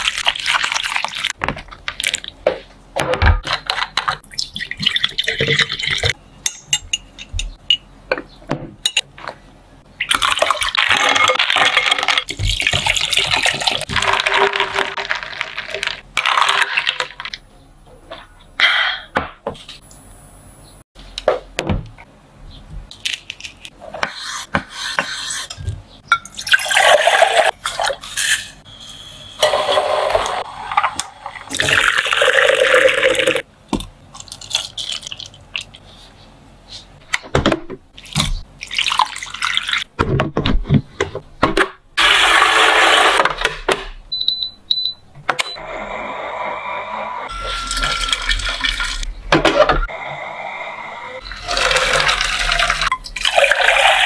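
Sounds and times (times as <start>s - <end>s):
liquid pouring: 38.6s - 39.8s, 51.3s - 54.0s
short high beeps: 47.3s - 48.3s.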